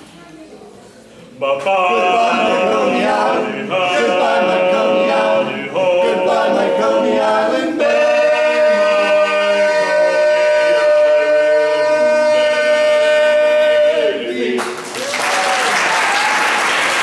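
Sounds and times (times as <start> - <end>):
male quartet singing a cappella: 1.4 - 14.8.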